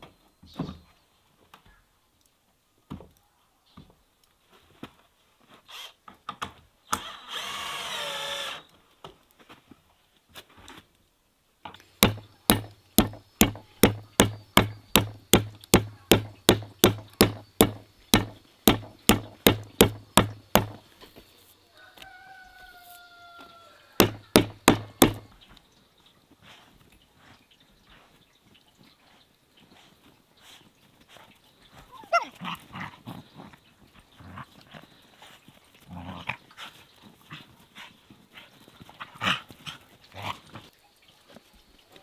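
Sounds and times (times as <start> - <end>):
knife chopping on wooden board: 12.0 - 20.8, 24.0 - 25.3.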